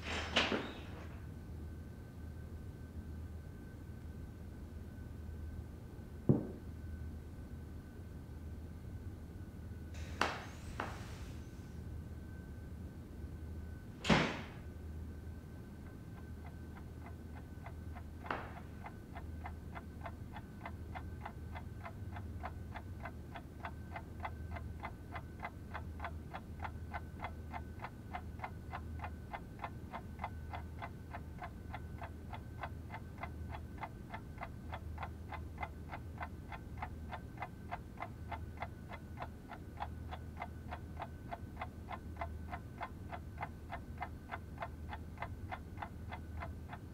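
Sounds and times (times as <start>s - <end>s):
wall clock ticking fast: 16.4s - 46.9s.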